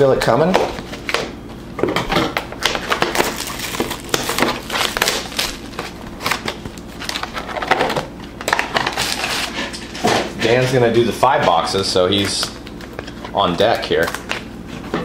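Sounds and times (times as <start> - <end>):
plastic wrap crinkling: 2.6 - 9.6.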